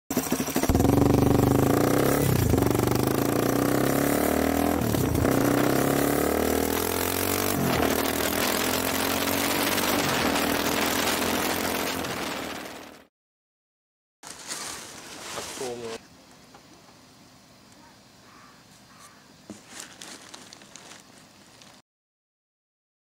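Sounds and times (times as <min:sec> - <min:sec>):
motorcycle engine with throttle blips: 0:00.1 - 0:13.0.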